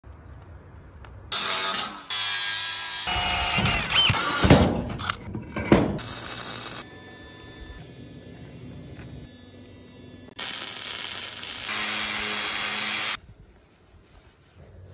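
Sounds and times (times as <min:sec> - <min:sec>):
metalworking power tools: 0:01.3 - 0:07.8, 0:09.7 - 0:13.2
magnetic drill boring steel: 0:10.4 - 0:13.2.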